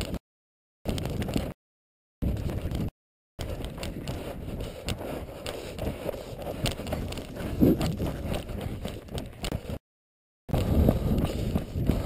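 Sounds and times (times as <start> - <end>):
camera rubbing and knocking: 2.2 - 9.8
footsteps on rocky trail: 2.2 - 9.8.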